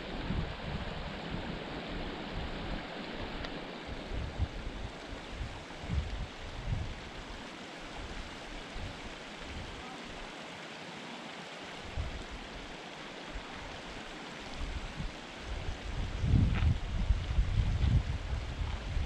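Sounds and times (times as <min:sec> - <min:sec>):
wind buffeting microphone: 0:00.0 - 0:07.3, 0:11.9 - 0:12.6, 0:14.5 - 0:19.0
steady rushing noise: 0:00.0 - 0:10.6.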